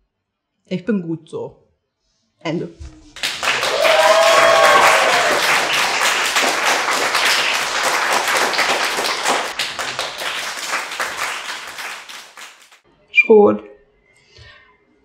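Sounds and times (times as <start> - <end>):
small audience clapping: 3.2 - 12.8.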